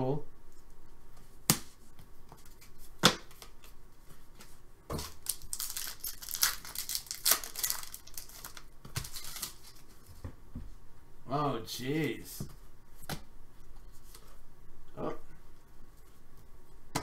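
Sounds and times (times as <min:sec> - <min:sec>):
wrapper tearing and crinkling: 0:05.0 - 0:09.8.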